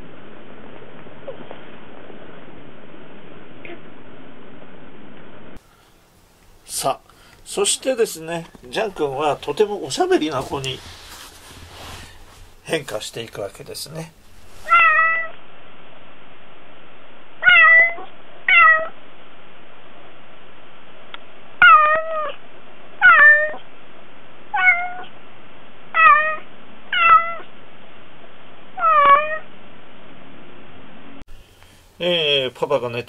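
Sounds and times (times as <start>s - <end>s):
recording hiss: 5.3s - 17.4s, 31.2s - 33.0s
cat meowing: 14.6s - 15.4s, 17.4s - 19.0s, 21.6s - 22.4s, 23.0s - 23.6s, 24.5s - 25.1s, 25.9s - 27.5s, 28.8s - 29.4s.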